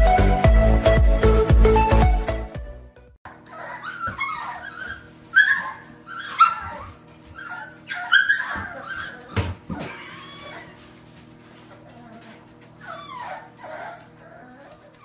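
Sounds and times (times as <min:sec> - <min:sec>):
puppies whining and yipping: 0:03.3 - 0:15.0.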